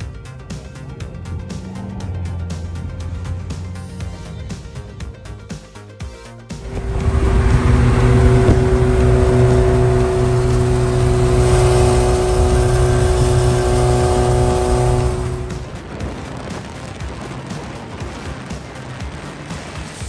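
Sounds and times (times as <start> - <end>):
sports car engine running: 0.0 - 5.7, 6.5 - 19.8
road and wind noise: 0.0 - 20.0.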